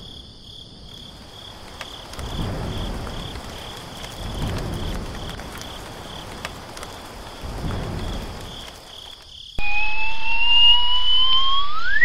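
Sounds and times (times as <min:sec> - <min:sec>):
rain: 0:00.0 - 0:09.6
pulsing insect chirp: 0:00.0 - 0:12.0
low thunder rumbles: 0:00.7 - 0:09.1
rising whistle-like tone: 0:09.6 - 0:12.0.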